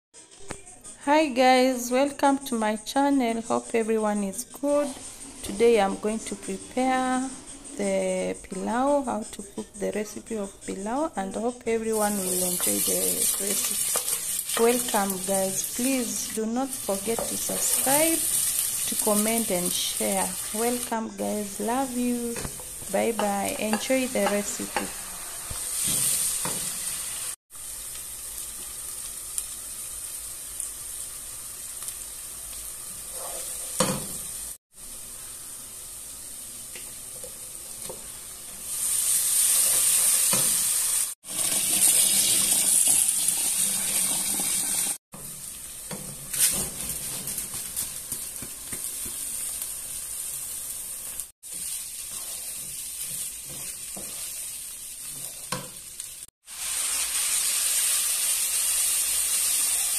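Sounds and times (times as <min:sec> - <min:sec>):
food sizzling in hot oil: 0:11.9 - 0:59.9
wooden spoon stirring: 0:51.4 - 0:55.7.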